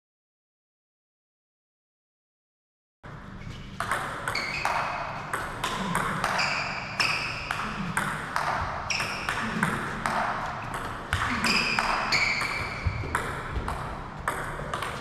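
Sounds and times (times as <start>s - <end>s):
table tennis ball knocking: 3.8s - 15.0s.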